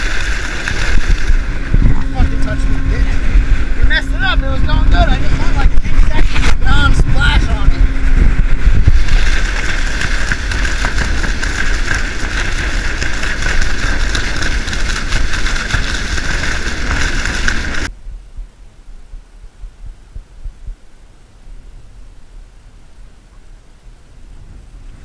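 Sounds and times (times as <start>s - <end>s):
water rushing past hull: 0.0s - 17.9s
outboard motor running: 0.0s - 18.0s
wind on microphone: 0.0s - 25.0s.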